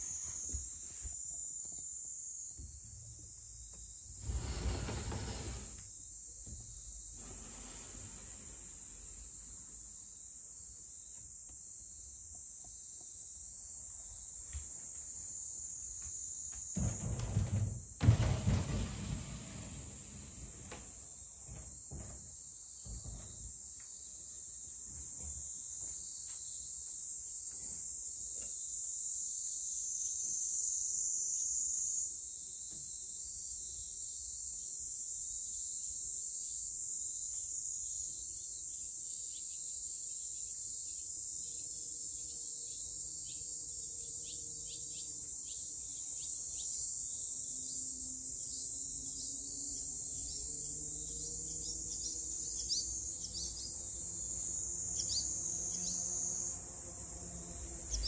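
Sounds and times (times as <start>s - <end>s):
high-pitched insect chorus: 0.0s - 18.2s, 20.7s - 58.0s
swallows chirping: 44.0s - 56.4s.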